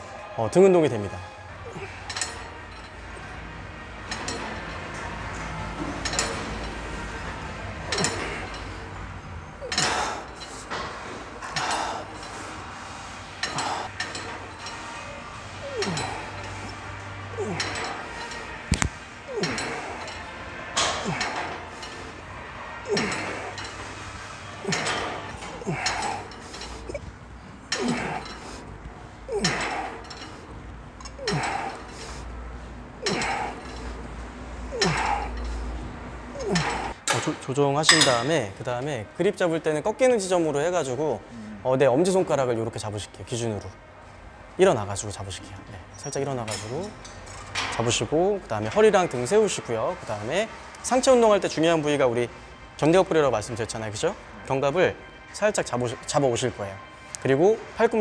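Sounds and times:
weight stack clinking: 0:09.6 - 0:12.4, 0:17.4 - 0:22.2, 0:22.8 - 0:23.9, 0:24.6 - 0:27.1, 0:27.7 - 0:28.7, 0:29.3 - 0:32.2, 0:33.0 - 0:34.0, 0:34.7 - 0:35.6.

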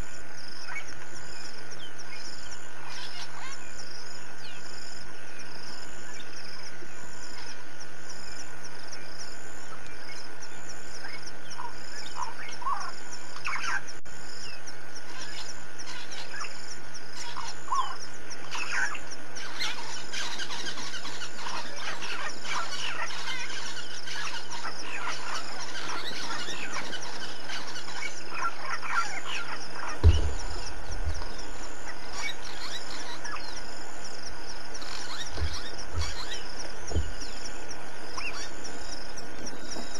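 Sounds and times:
high chirping calls: 0:00.0 - 0:39.9
low hum: 0:00.0 - 0:39.9
pulsing insect call: 0:00.0 - 0:39.9
thump: 0:30.0 - 0:31.2, 0:35.3 - 0:36.3.

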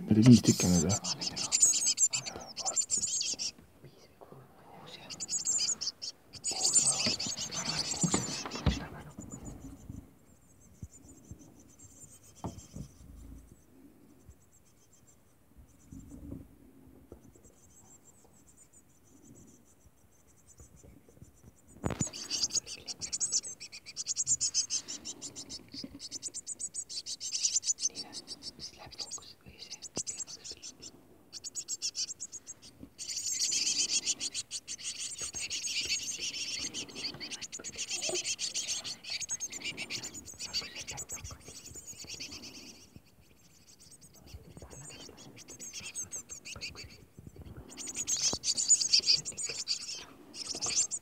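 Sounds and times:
nestlings cheeping: 0:00.0 - 0:03.6, 0:04.9 - 0:09.8, 0:22.0 - 0:51.0
rustling in nest material: 0:00.1 - 0:04.2, 0:04.9 - 0:14.8, 0:21.2 - 0:51.0.

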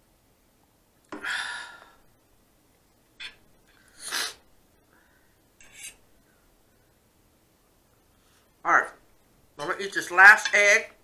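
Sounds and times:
woman sniffing: 0:03.9 - 0:04.4.

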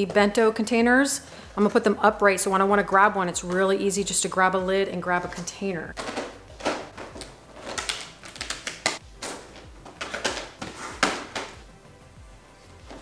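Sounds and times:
plastic containers clacking and scraping: 0:06.0 - 0:11.6.

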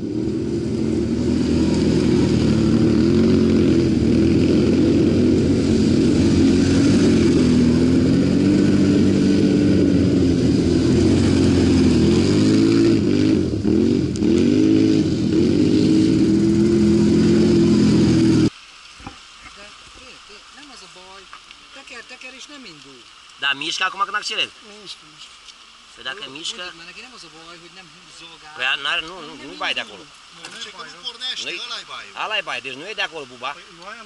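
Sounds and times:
atv engines revving past: 0:00.0 - 0:18.5.

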